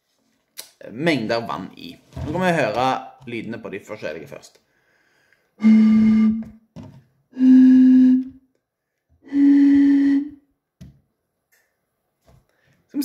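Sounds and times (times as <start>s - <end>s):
breathy flute-like bottle notes: 5.6s - 6.6s, 7.3s - 8.4s, 9.2s - 10.5s.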